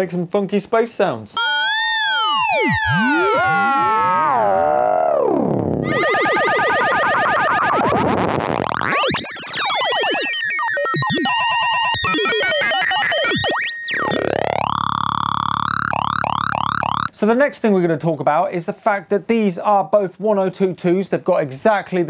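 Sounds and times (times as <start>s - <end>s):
sweeping oscillator tones: 1.4s - 17.1s.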